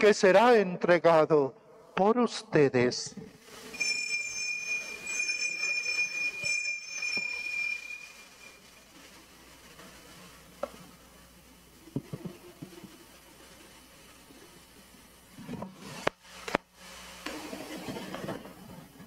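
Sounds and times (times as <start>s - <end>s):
altar bells ringing: 3.7s - 8.9s.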